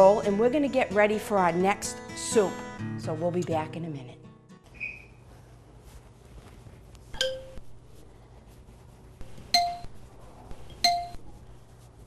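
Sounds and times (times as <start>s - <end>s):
ceramic plate clinking: 7.2s - 7.6s.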